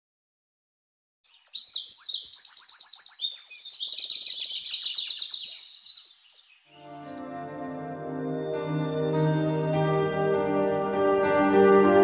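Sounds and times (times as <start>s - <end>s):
songbird chirping and trilling: 1.3s - 7.2s.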